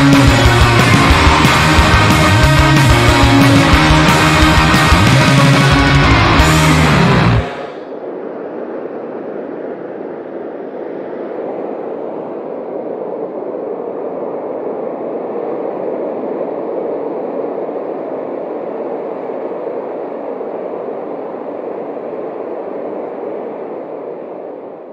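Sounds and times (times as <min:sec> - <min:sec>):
surf roaring onto a beach: 0:00.0 - 0:08.0.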